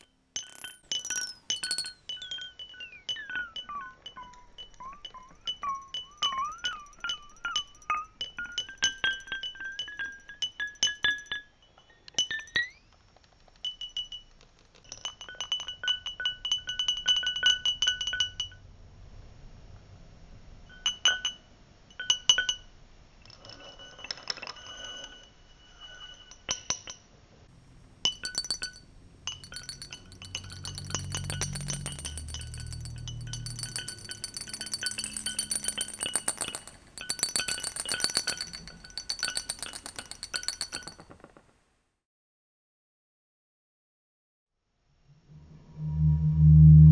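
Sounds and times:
glass bottle clinks with echoes: 0:00.0 - 0:12.8, 0:27.6 - 0:41.2
low tone: 0:27.5 - 0:38.0, 0:45.1 - 0:46.9.

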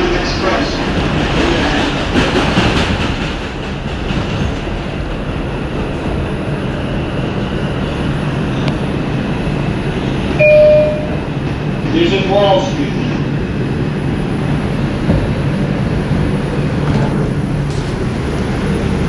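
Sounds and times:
subway train rumbling: 0:00.0 - 0:19.0
short loud tone: 0:10.4 - 0:11.2.

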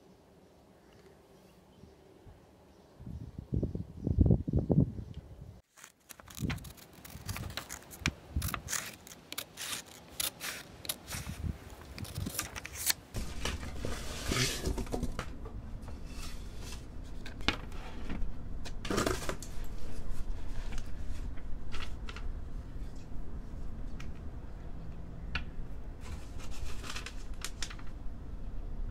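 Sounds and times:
rustling paper cuts: 0:05.6 - 0:14.6
scissors snipping paper: 0:05.7 - 0:13.0.

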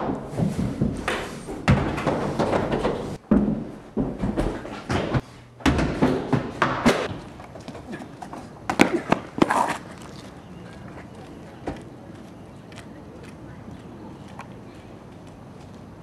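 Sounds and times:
feet running on stairs: 0:00.0 - 0:09.3
low background noise: 0:00.0 - 0:16.0.

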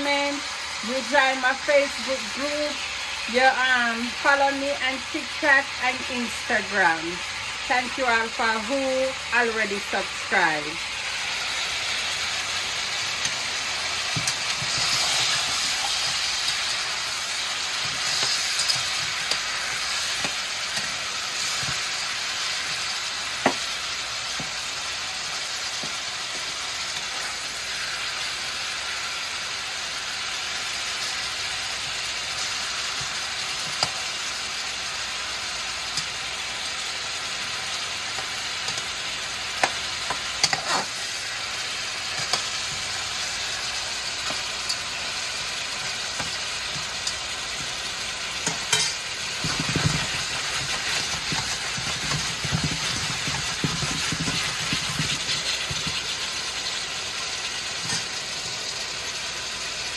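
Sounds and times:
meat sizzling in oil: 0:00.0 - 0:59.9
metal spatula clicks and scrapes: 0:13.2 - 0:22.8, 0:33.0 - 0:34.0, 0:38.2 - 0:38.9, 0:39.6 - 0:41.1, 0:42.1 - 0:42.8, 0:46.2 - 0:47.3, 0:48.4 - 0:56.1.

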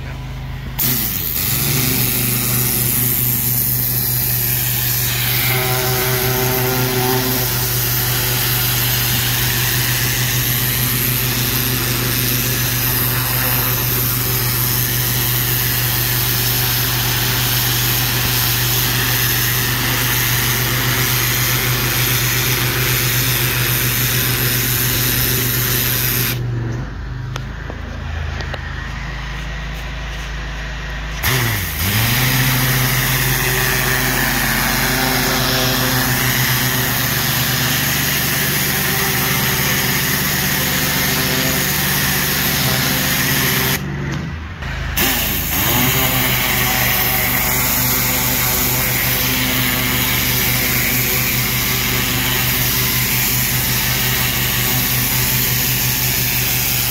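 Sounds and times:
pressure washer engine humming: 0:00.0 - 0:26.5, 0:27.3 - 0:56.9
pressure washer water jet hissing: 0:00.7 - 0:26.4, 0:31.1 - 0:43.8, 0:44.7 - 0:56.9.

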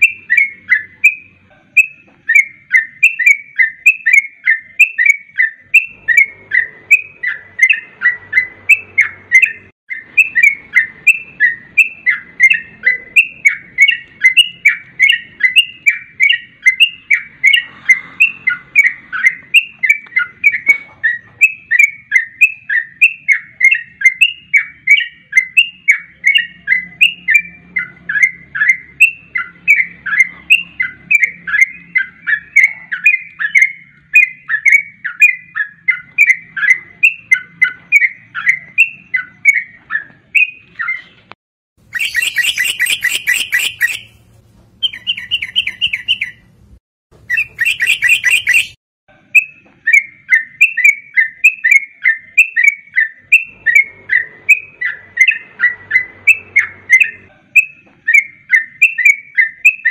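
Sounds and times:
bird chattering call: 0:00.0 - 0:41.1, 0:41.8 - 0:46.5, 0:47.2 - 0:48.8.

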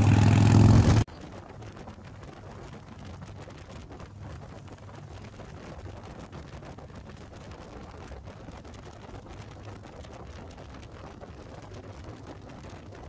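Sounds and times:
motorcycle engine: 0:00.0 - 0:01.1.

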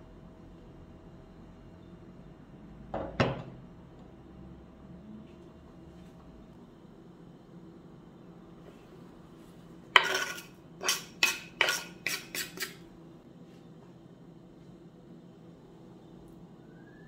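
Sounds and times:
knife scraping wooden cutting board: 0:10.0 - 0:12.8.

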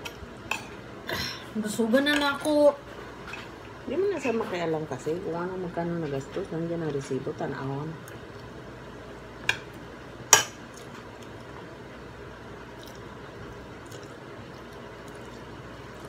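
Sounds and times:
faint eating clicks: 0:12.7 - 0:16.0.

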